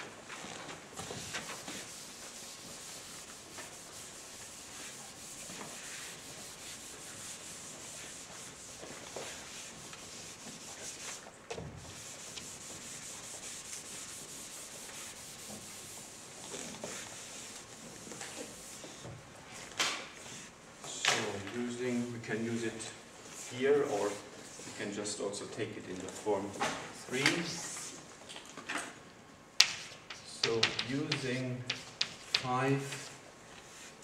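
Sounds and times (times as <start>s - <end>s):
eraser rubbing on blackboard: 1.0s - 11.2s, 11.8s - 17.8s.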